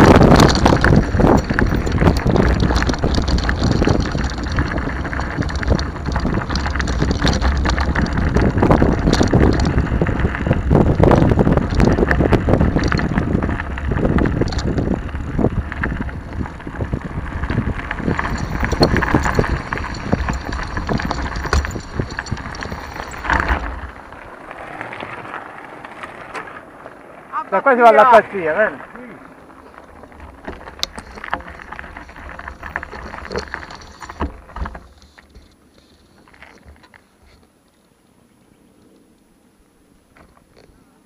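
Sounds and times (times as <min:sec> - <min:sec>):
wind buffeting microphone: 0:00.0 - 0:25.4
bike rattling: 0:00.0 - 0:37.5
bike tyres crunching on gravel: 0:00.0 - 0:37.6.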